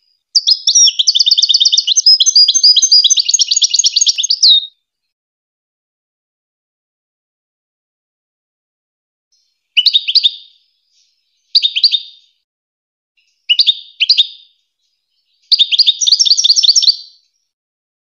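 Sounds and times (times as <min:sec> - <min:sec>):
goldfinch singing: 0:00.4 - 0:04.7, 0:09.8 - 0:12.4, 0:13.3 - 0:14.5, 0:15.2 - 0:17.3.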